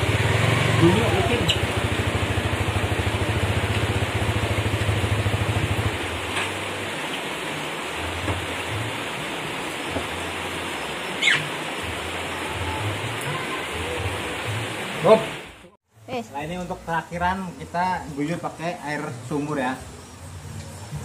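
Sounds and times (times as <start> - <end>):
motorcycle engine idling: 0.0 - 6.0
steady rain hiss: 0.0 - 21.0
short high squeak: 11.2 - 11.5.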